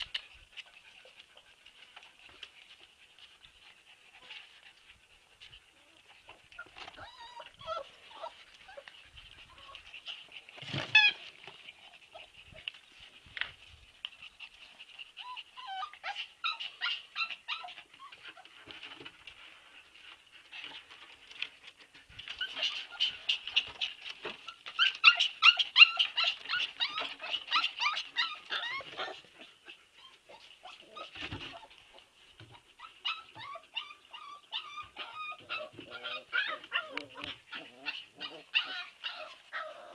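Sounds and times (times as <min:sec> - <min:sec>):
puppies yipping and whining: 0:00.0 - 0:39.9
puppy yelp: 0:06.6 - 0:09.9, 0:10.6 - 0:11.4, 0:15.2 - 0:18.9, 0:22.2 - 0:39.9.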